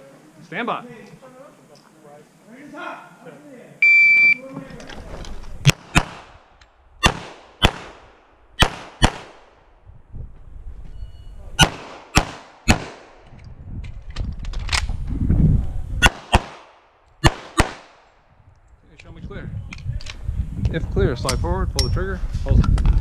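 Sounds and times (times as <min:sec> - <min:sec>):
pistol shots in quick pairs: 0:05.7 - 0:06.3, 0:07.0 - 0:09.4, 0:11.6 - 0:13.1, 0:16.0 - 0:18.0.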